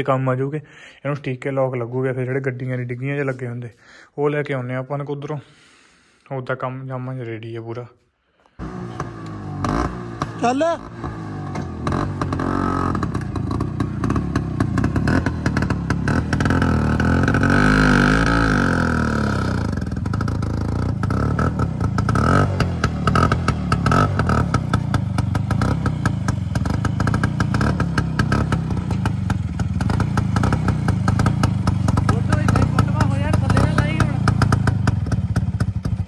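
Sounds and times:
scooter engine revving: 8.6 - 36.0.

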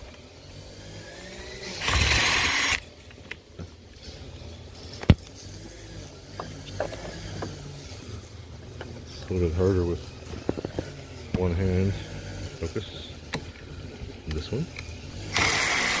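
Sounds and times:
cordless drill running: 1.0 - 2.8, 15.2 - 16.0.

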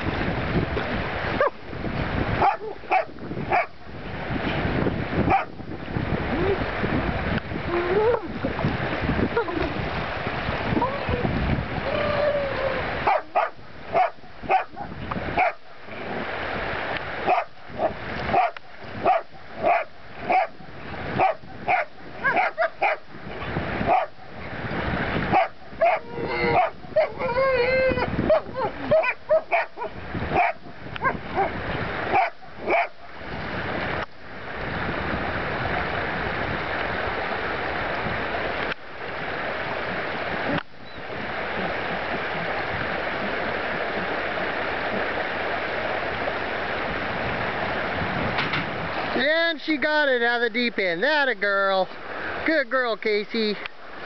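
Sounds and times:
stream rushing: 0.0 - 54.0
dog barking: 2.4 - 3.8, 5.3 - 5.5, 13.0 - 15.6, 17.2 - 23.0, 23.9 - 24.3, 25.3 - 27.3, 28.2 - 33.1
dog yelping and whining: 11.8 - 14.8, 25.4 - 31.5.

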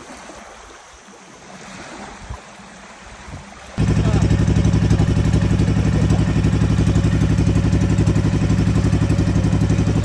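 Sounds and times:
boat engine chugging: 3.7 - 10.0.

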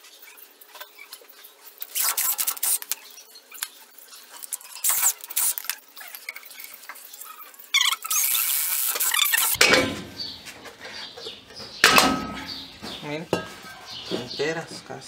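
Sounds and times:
metallic clinks and scrapes: 0.2 - 9.6
metal clatter: 11.6 - 13.7.

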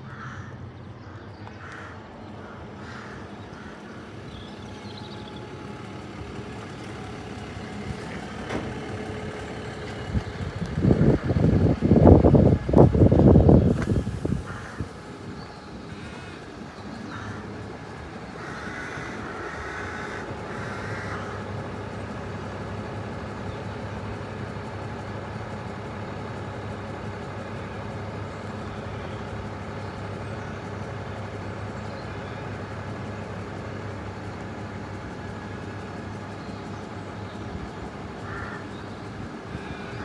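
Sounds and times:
vehicle engine drone: 0.0 - 40.0.

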